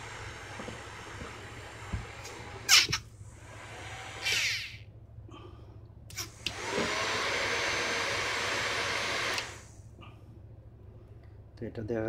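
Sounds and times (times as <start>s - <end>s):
hair dryer fan whine and rush: 0.0s - 2.7s, 3.3s - 4.5s, 6.2s - 9.8s.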